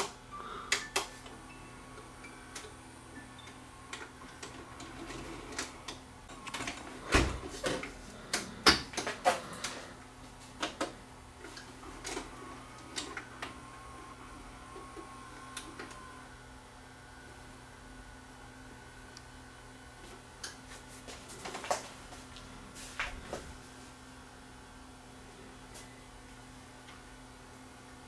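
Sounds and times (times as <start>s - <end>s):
faint steady hum: 0.0s - 28.0s.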